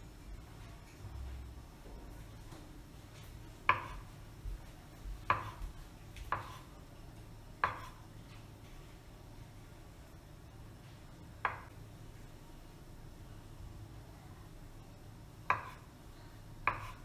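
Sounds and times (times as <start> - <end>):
knife chopping on wooden board: 3.7 - 4.0, 5.3 - 6.7, 7.6 - 8.0, 15.5 - 15.9, 16.6 - 17.0.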